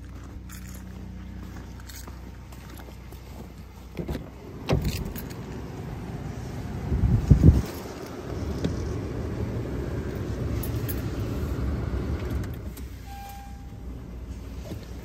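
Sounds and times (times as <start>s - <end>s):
car engine idling: 0.0s - 15.0s
climate fans blowing: 3.0s - 15.0s
faint short beep: 13.0s - 13.9s.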